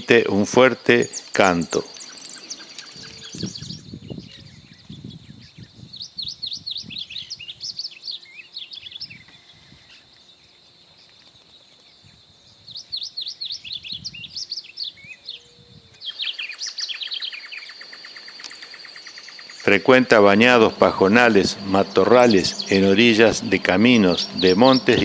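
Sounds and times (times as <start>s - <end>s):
bird singing warbled high notes: 16.1s - 25.0s.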